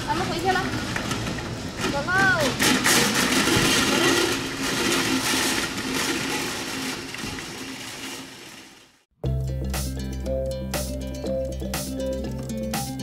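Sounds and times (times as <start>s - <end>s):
shopping cart rolling on pavement: 0.0s - 9.0s
music: 9.2s - 13.0s.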